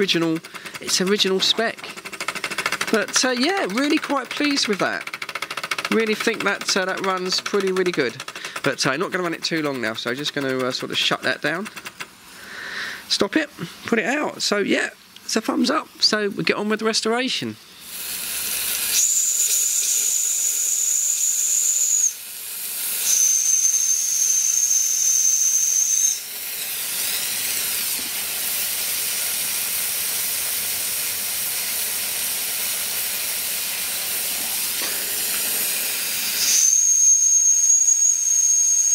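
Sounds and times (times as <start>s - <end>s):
steam hissing: 0.0s - 13.9s, 17.5s - 38.9s
steam whistle blowing: 17.8s - 29.0s, 34.1s - 38.9s.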